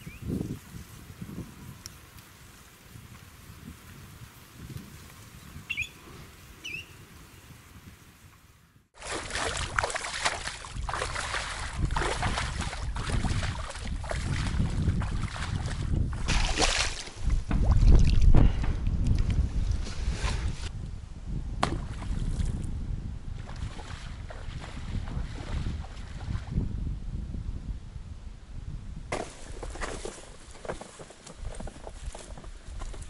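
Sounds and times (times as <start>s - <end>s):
short bird calls: 5.6s - 7.0s
boots splashing through water: 9.0s - 18.3s.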